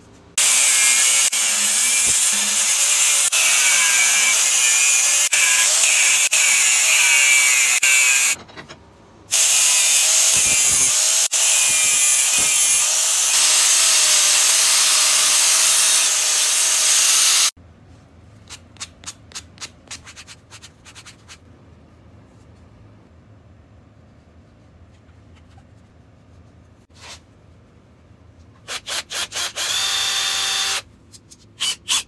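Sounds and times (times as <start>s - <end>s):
angle grinder on steel: 0.4s - 8.4s, 9.3s - 17.5s.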